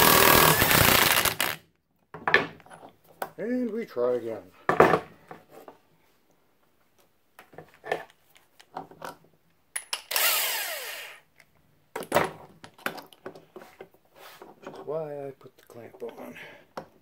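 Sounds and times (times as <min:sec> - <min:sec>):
impact wrench whirring: 0:00.0 - 0:01.6, 0:10.1 - 0:11.2.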